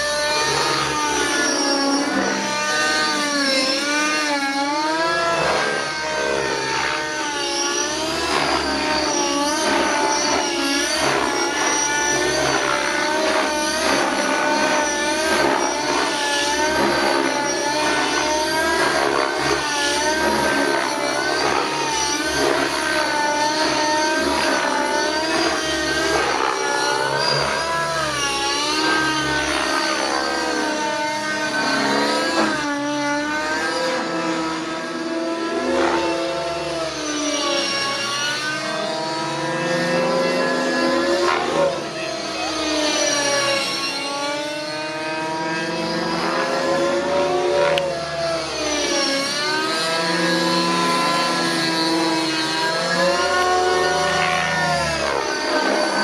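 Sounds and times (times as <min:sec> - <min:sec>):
model helicopter engine running: 0:00.0 - 0:56.0.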